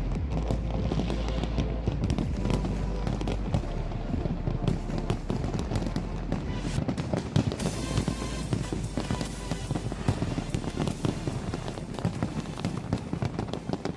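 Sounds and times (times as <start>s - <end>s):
low rumble: 0.0s - 6.9s
fireworks bursting: 0.0s - 13.9s
fireworks crackling: 0.0s - 13.9s.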